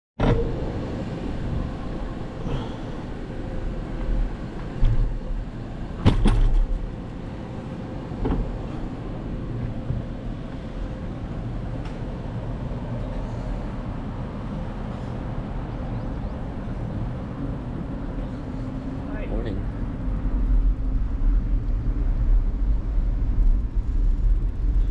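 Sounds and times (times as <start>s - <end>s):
knocks and rattles from bumps: 6.0s - 6.8s
bicycle rolling on pavement: 19.6s - 24.9s.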